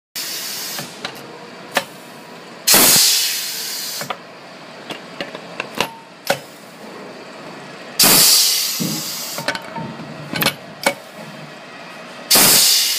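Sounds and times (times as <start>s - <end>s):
loud blast of air: 0.2s - 1.0s, 2.7s - 4.1s, 8.0s - 9.4s, 12.3s - 12.9s
short air hiss: 2.7s - 4.1s, 8.0s - 9.4s, 12.3s - 12.9s.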